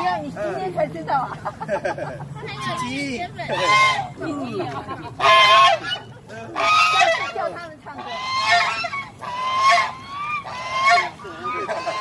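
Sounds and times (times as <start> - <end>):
geese honking: 2.6 - 4.2, 5.1 - 12.0.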